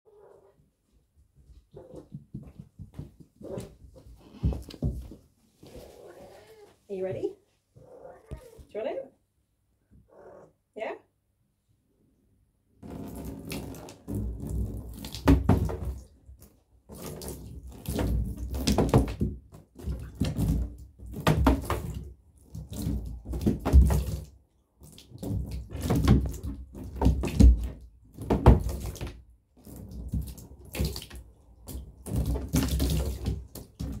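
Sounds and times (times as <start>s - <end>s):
water splashing into empty bathtub: 12.8s - 34.0s.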